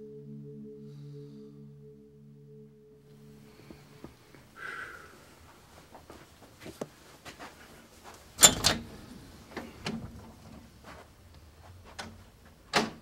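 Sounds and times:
door clicks and knocks: 8.4 - 10.4, 12.0 - 13.0.

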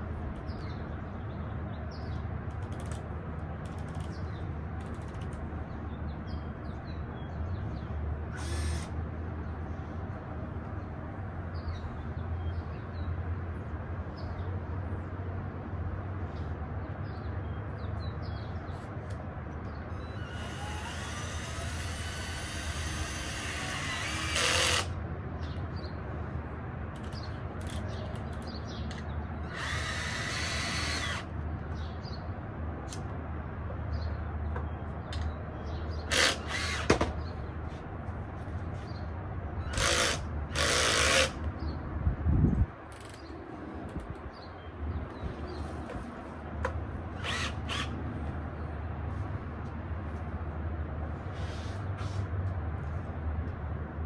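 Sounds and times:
small birds chirping: 0.4 - 3.0, 27.0 - 32.4, 33.9 - 37.8
cordless drill drilling into wood: 8.3 - 8.9, 20.0 - 24.9, 29.5 - 31.3, 36.1 - 37.1, 39.7 - 41.4, 47.2 - 47.9.

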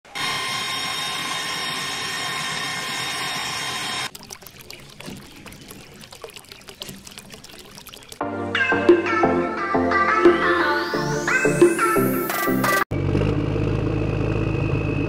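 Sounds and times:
water trickling and splashing: 4.0 - 8.3
water dripping: 4.1 - 9.4.

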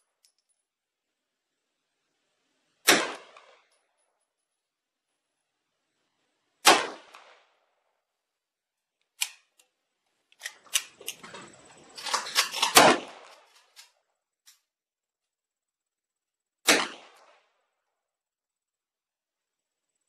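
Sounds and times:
pistol gunshots: 2.8 - 3.7, 6.6 - 7.5, 12.0 - 13.5, 16.6 - 17.4
gun clicks: 8.9 - 14.7.

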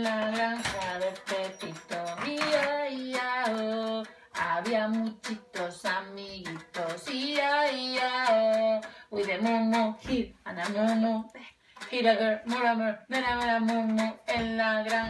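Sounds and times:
woman singing into toy microphone: 0.0 - 15.0.

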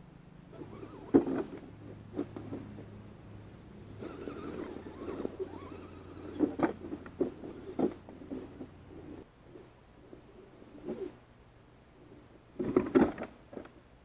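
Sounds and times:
electric motor humming: 0.5 - 9.2.

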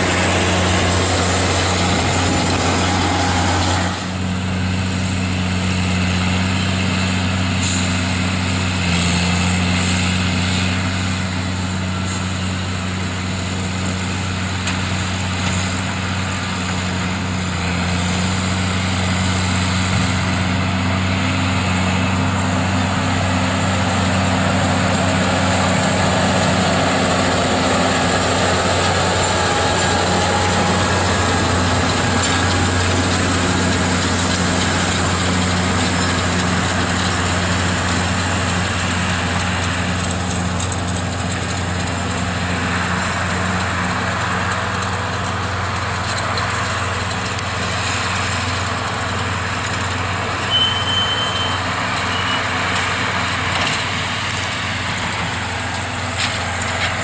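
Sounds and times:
tractor diesel engine running: 0.0 - 57.0
brief high tone: 50.4 - 52.4.

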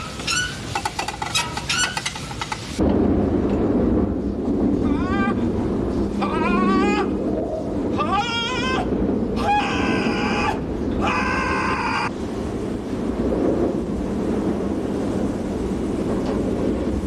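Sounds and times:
engine room rumble: 0.0 - 17.0
man wailing in panic: 6.2 - 7.2, 8.0 - 12.1.

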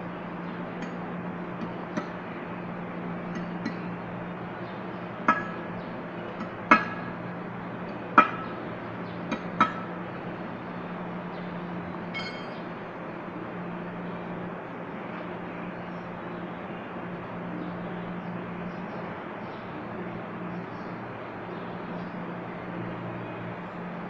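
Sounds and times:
hammer striking metal: 5.3 - 5.8, 6.4 - 7.2, 8.2 - 8.6, 9.3 - 9.9, 12.2 - 12.6
metallic clink: 12.1 - 12.6.

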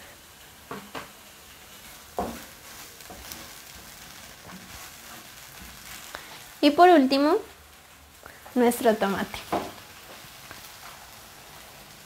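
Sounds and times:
onion frying in oil: 0.0 - 12.0
wooden spatula knocking on pan: 2.2 - 2.5, 9.5 - 9.8.

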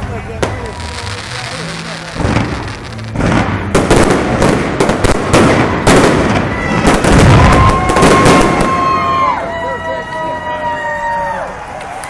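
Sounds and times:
fireworks bursting: 0.0 - 9.4.

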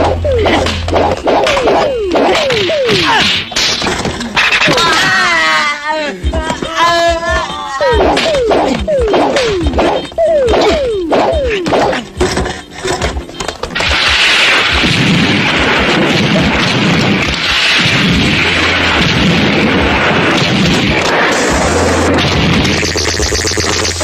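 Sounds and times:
low pulsing rumble: 0.0 - 2.8
falling electronic zaps: 13.8 - 24.0.

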